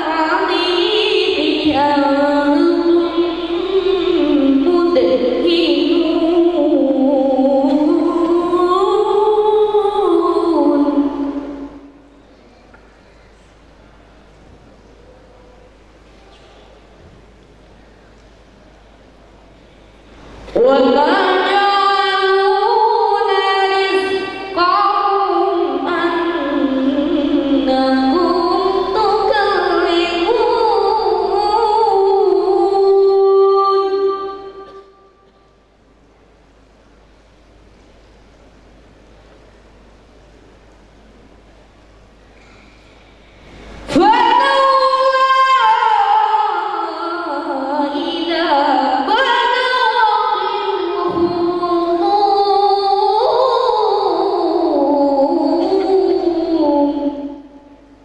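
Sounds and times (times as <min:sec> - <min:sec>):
boy singing: 0:00.0 - 0:11.8, 0:20.6 - 0:34.8, 0:43.9 - 0:57.4.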